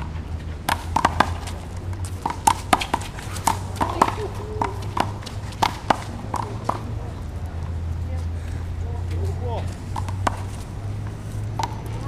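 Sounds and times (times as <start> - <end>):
ball slaps and smacks: 0.6 - 7.0, 9.9 - 12.0
footsteps scuffing on court: 8.2 - 12.0.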